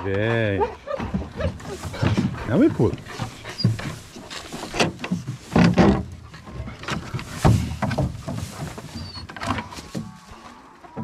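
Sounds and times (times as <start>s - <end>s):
dog paws on wooden trailer: 0.0s - 11.0s
dull knocks: 1.0s - 8.9s.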